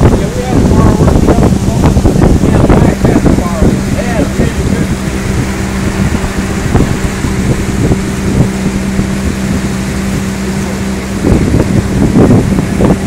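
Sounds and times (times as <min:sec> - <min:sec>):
outboard motor droning: 0:00.0 - 0:13.0
wind buffeting microphone: 0:00.0 - 0:13.0.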